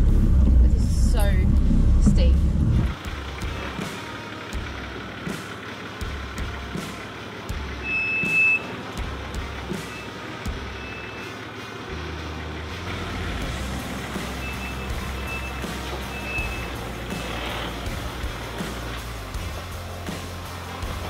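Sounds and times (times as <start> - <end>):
truck engine rumble: 0.0 - 21.0
electronic warning beeps: 7.8 - 8.7, 10.8 - 11.3, 14.4 - 16.8.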